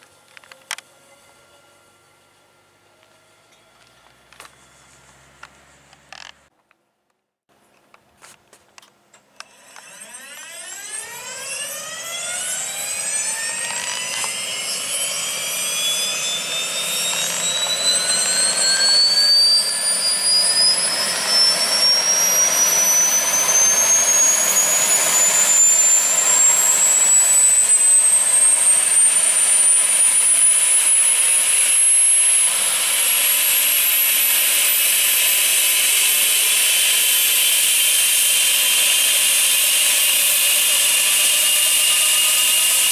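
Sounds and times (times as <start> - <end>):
helicopter turbine whine: 9.4 - 42.9.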